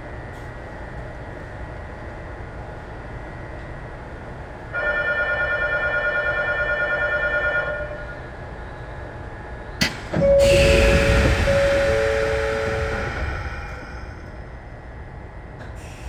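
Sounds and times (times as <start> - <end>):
train background hum: 0.0 - 16.0
departure bell ringing: 4.8 - 8.2, 10.2 - 14.6.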